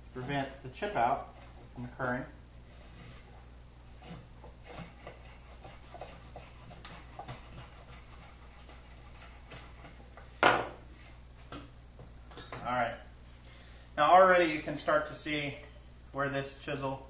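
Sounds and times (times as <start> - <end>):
hand tool scraping wood: 2.7 - 10.1
wooden plane knocking on workbench: 10.4 - 10.8.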